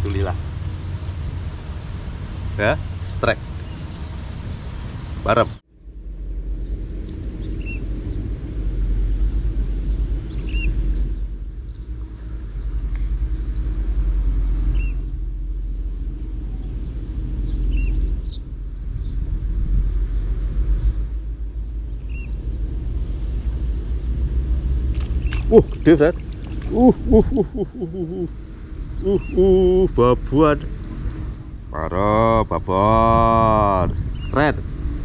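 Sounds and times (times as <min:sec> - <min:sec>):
low rumble: 0:00.0 - 0:35.0
small bird chirping: 0:00.6 - 0:07.9, 0:08.8 - 0:12.9, 0:21.6 - 0:29.9, 0:33.9 - 0:34.4.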